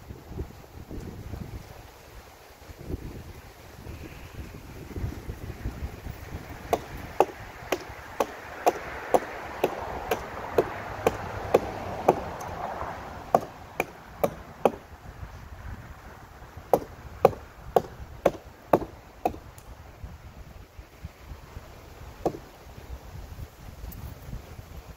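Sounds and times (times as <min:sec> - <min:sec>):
wind rumble on microphone: 0:00.0 - 0:24.9
hatchet chopping wood: 0:06.7 - 0:14.9, 0:16.7 - 0:19.7, 0:22.2 - 0:22.6.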